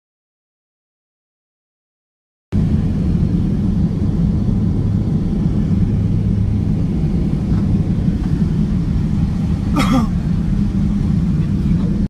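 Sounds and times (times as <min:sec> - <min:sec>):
jet engines rumbling: 0:02.6 - 0:12.0
rushing air: 0:02.6 - 0:12.0.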